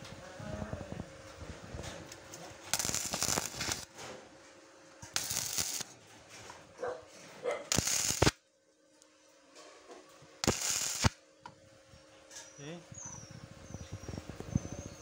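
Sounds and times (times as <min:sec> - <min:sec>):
welding arc crackling: 0:02.0 - 0:04.0, 0:04.9 - 0:06.0, 0:07.7 - 0:08.5, 0:10.4 - 0:11.2.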